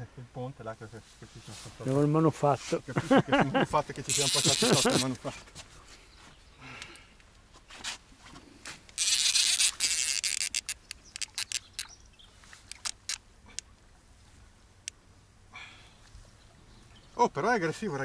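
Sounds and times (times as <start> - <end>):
fishing reel clicks: 4.1 - 5.1, 8.9 - 11.9, 12.7 - 13.2
fishing reel drag buzzing: 4.1 - 5.1, 9.0 - 11.9, 12.6 - 13.2.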